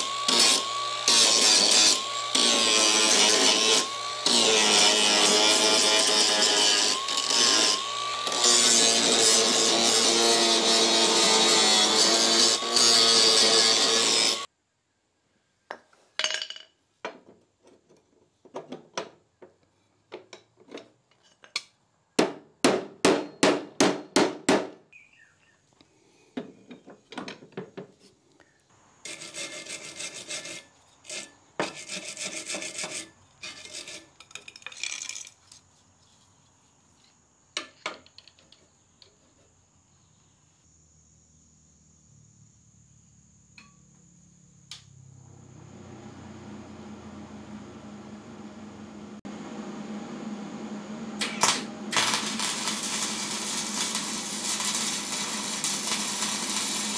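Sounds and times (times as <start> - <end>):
scraping and rubbing on metal: 29.0 - 34.5.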